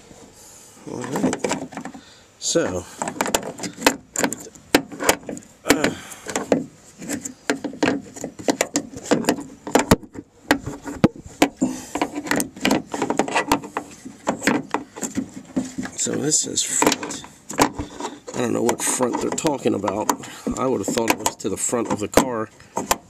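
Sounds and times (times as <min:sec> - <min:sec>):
metal parts knocking and rattling: 0:01.0 - 0:02.0, 0:03.0 - 0:23.0.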